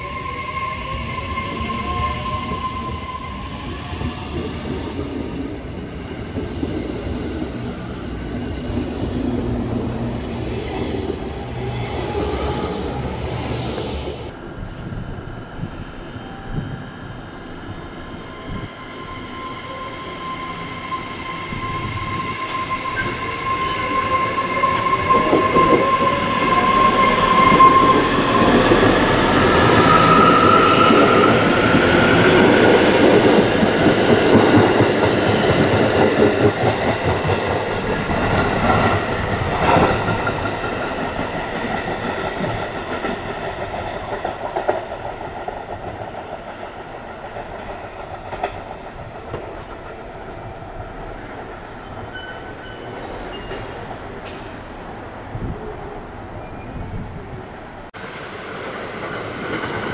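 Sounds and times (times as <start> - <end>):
electric train whine: 0.0 - 59.9.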